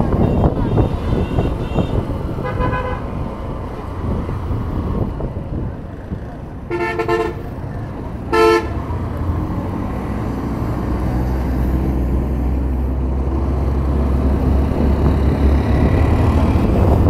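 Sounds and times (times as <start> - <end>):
wind noise: 0.0 - 17.0
vehicle horn honking: 0.2 - 3.1, 6.7 - 7.5, 8.3 - 8.8.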